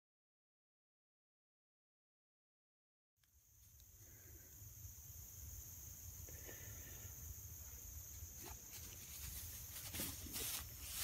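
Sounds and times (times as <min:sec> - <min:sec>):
grass rustling: 0:07.8 - 0:11.0.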